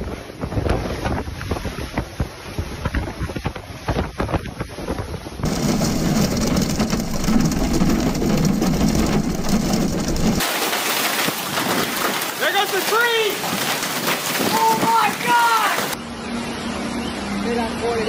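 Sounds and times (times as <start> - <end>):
storm wind buffeting microphone: 0.0 - 10.4
low hum: 5.4 - 10.4
rain: 5.4 - 16.0.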